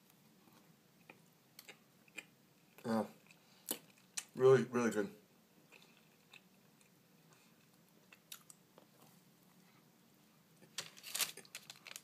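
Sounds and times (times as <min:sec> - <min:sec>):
person chewing: 0:00.5 - 0:04.3, 0:05.6 - 0:09.0.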